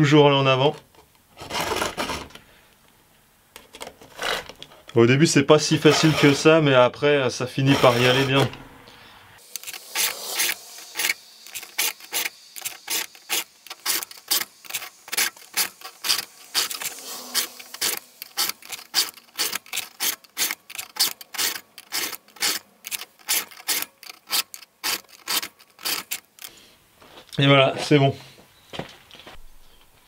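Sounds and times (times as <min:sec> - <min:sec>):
file rasping on chainsaw chain: 0:05.8 - 0:06.6, 0:07.6 - 0:08.4, 0:09.5 - 0:26.4.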